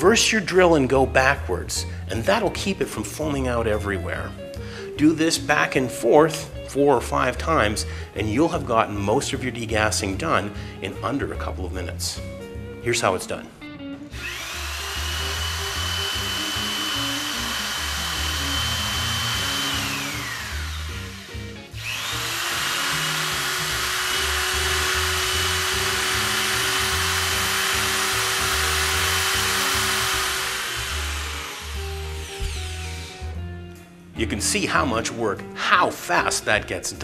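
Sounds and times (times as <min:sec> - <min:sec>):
background music: 0:00.0 - 0:37.0
electric drill motor whine: 0:14.1 - 0:33.4.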